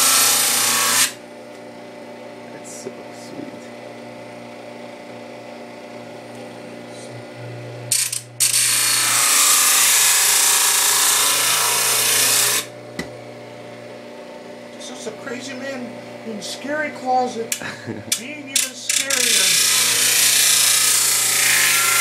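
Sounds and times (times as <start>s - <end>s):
disc sharpener grinding metal: 0.0s - 1.2s, 7.9s - 12.7s, 14.7s - 22.0s
steady hum: 0.0s - 9.2s, 11.2s - 20.1s.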